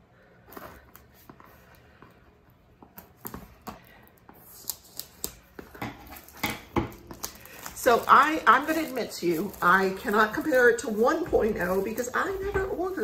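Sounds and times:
plastic film crinkling: 3.5s - 13.0s
scissors snipping plastic film: 6.2s - 12.6s.

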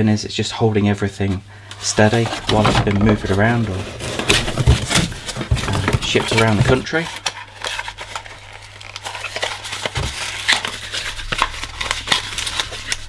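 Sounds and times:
cardboard scraping and knocking: 2.0s - 7.0s.

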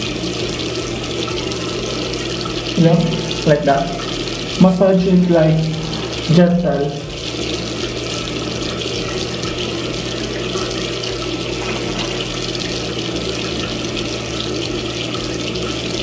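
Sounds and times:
tap water running into sink: 0.0s - 16.0s
low hum: 1.0s - 8.8s.

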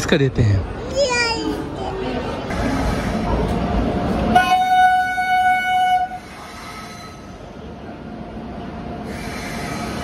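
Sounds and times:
train rumbling in: 0.0s - 10.0s
locomotive horn blast: 4.3s - 6.3s.

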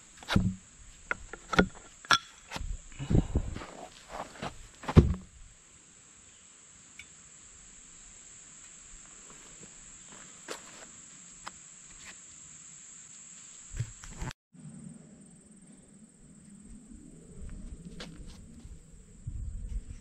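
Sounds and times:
thumps: 0.2s - 5.3s.

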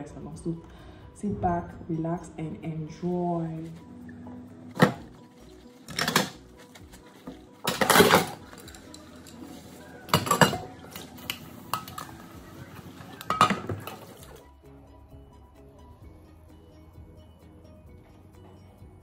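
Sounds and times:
dishes clattering in metal sink: 5.8s - 6.5s, 7.6s - 12.2s, 13.0s - 14.4s.

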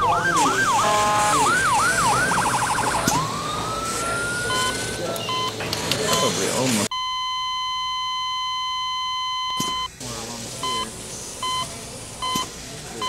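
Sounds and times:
faint muffled voices: 0.0s - 6.9s, 10.0s - 13.0s
heart monitor flatline tone: 2.3s - 9.9s
heart monitor beeps: 4.0s - 9.9s, 10.6s - 12.5s.

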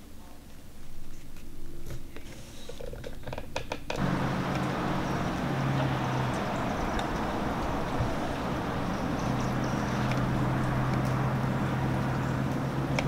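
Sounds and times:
low hum: 4.0s - 13.0s.

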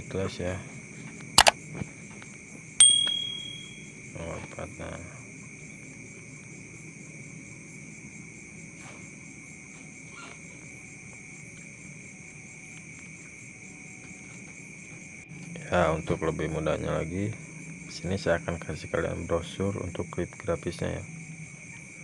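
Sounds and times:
insects chirring: 0.0s - 22.0s
bright chime: 2.8s - 3.8s.

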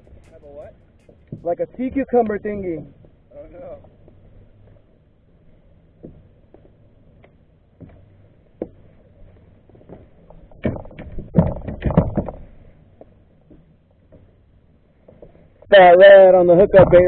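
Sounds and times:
low steady rumble: 0.0s - 17.0s
knocks and rattles on plastic kayak: 9.6s - 14.3s.

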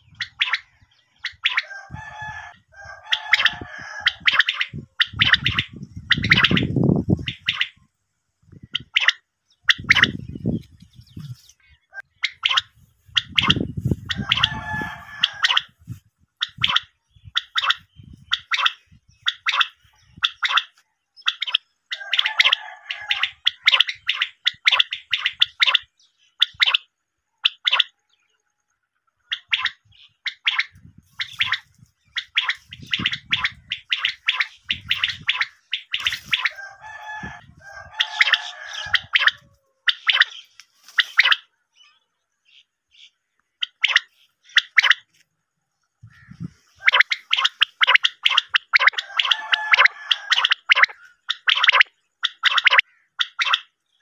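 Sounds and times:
quail calling sharp high notes: 29.3s - 41.5s, 46.1s - 53.7s.

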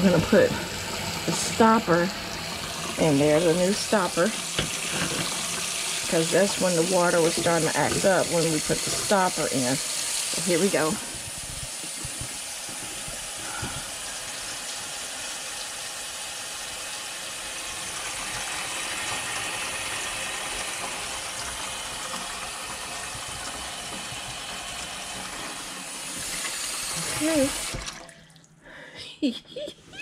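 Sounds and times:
tap water running into metal sink: 0.0s - 28.4s.

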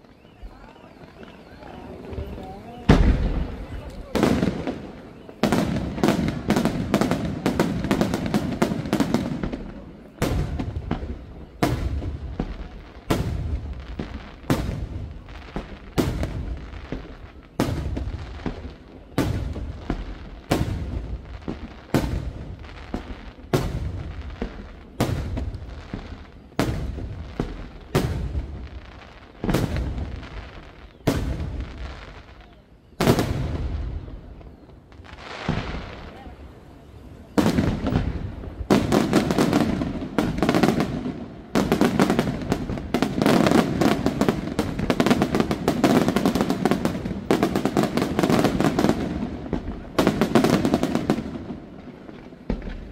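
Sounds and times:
firework crackles: 0.0s - 52.9s
booms with rumbling echo: 2.9s - 4.9s.

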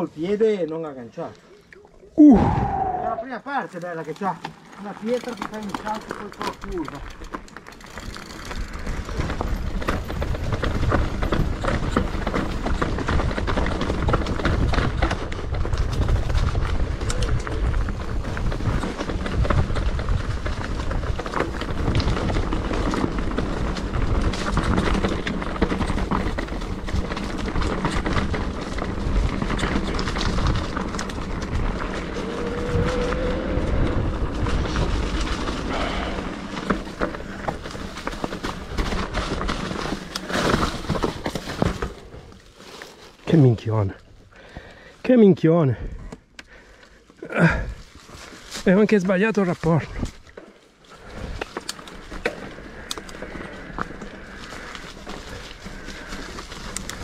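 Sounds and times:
bike rattling: 2.9s - 57.0s
tyres running over stones: 3.2s - 45.3s.

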